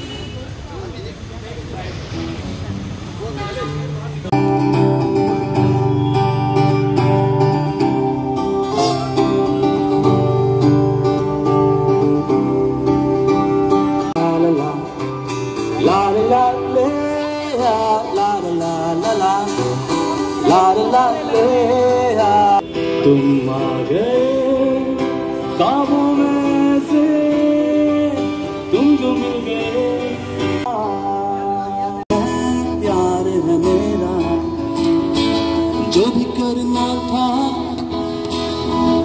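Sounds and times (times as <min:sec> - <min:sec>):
guitar accompaniment: 0:02.0 - 0:39.0
person singing: 0:13.9 - 0:35.0.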